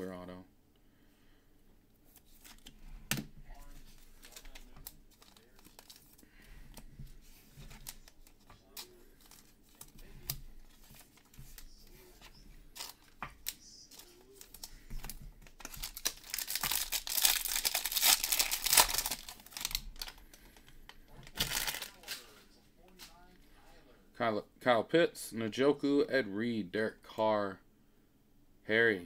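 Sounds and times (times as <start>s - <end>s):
foil wrapper tearing and crinkling: 3.8s - 6.2s, 12.7s - 20.3s, 21.3s - 22.2s.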